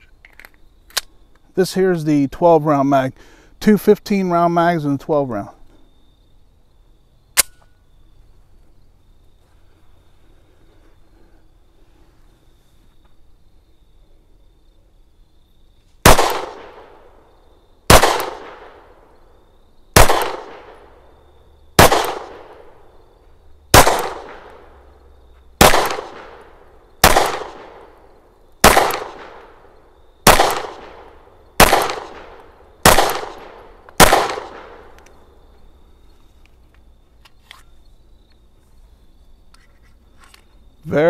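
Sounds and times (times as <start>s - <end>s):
pistol shots with echo: 16.0s - 17.2s, 17.9s - 19.1s, 20.0s - 21.0s, 21.8s - 22.8s, 23.7s - 24.7s, 25.6s - 27.9s, 28.6s - 35.0s.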